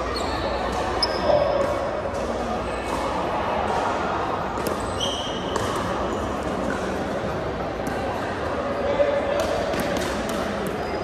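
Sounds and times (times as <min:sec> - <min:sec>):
sneaker squeaks on hardwood: 0:00.0 - 0:01.7, 0:04.8 - 0:06.4.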